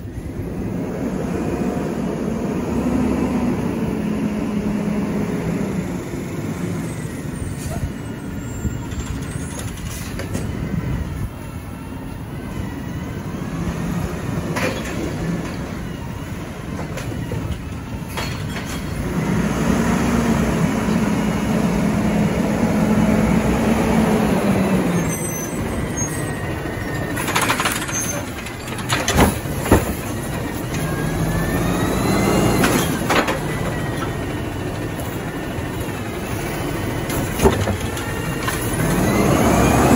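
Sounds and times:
engine revving with rising whine: 0.5 - 7.0, 19.0 - 25.1, 30.8 - 33.0, 38.7 - 39.9
diesel truck engine running: 18.8 - 39.9.

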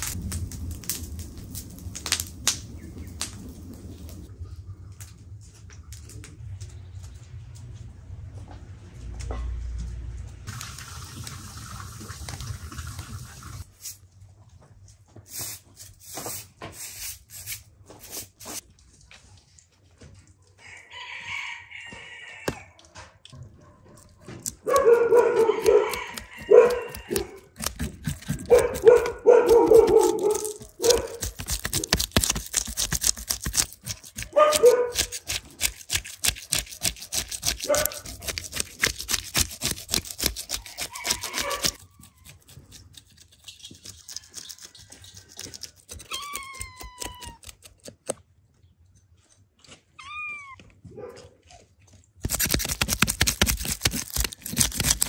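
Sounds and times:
knife scraping fish scales: 24.4 - 47.8, 52.2 - 55.0.

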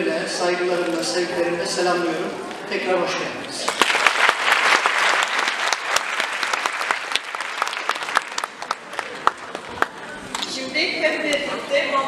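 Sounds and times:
audience applauding: 3.7 - 10.2.

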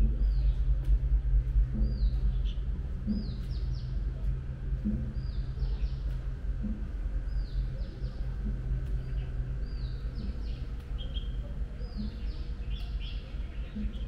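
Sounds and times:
low hum of city background: 0.0 - 14.0.

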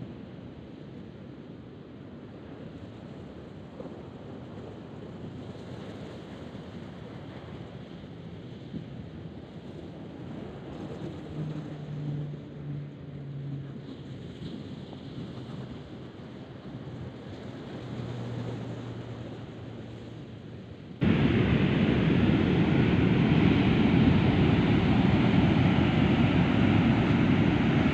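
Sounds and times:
wind buffeting microphone: 20.5 - 27.9
surf breaking on beach: 21.0 - 27.9.

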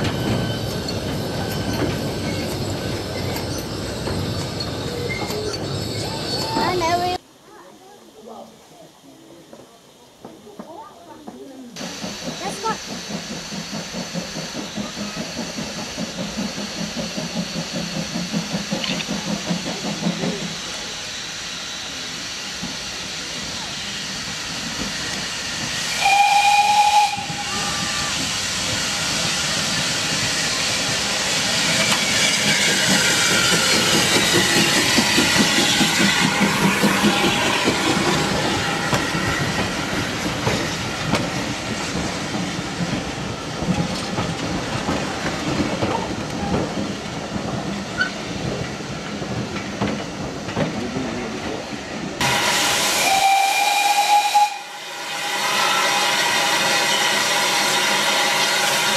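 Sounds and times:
train wheels rumbling on rails: 0.0 - 7.3, 9.2 - 58.9
steam hissing: 0.0 - 58.9
steam whistle blasts: 25.8 - 30.7, 52.2 - 58.9.

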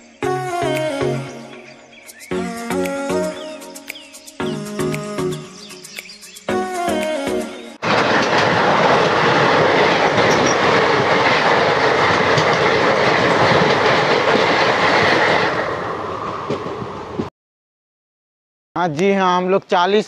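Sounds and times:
train coaches rushing past: 7.8 - 17.3
wheels clickety-clack over rail joints: 7.8 - 17.3.

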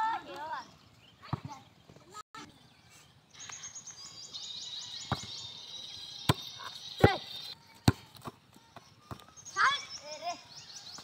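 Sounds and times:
football being kicked: 5.1 - 5.4, 6.3 - 8.4.

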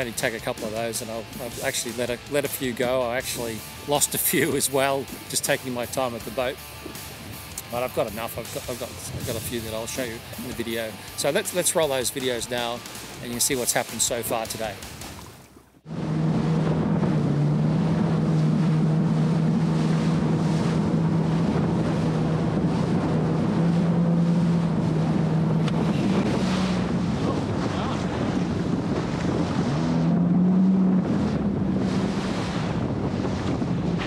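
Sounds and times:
jet ski engine: 0.0 - 34.0
rushing water: 0.0 - 34.0
wind buffeting microphone: 6.8 - 11.1, 15.2 - 34.0.

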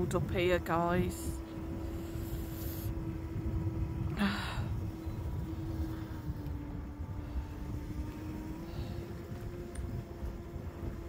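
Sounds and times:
faint hum: 0.0 - 11.0
low outdoor rumble: 0.0 - 11.0
person exhaling: 4.2 - 4.8.

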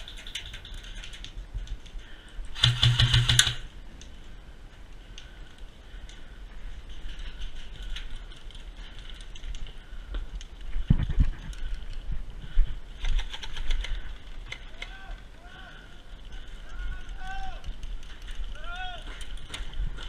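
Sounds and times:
faint clicks and ticks: 0.0 - 20.0
airsoft rifle automatic fire: 2.6 - 3.7.

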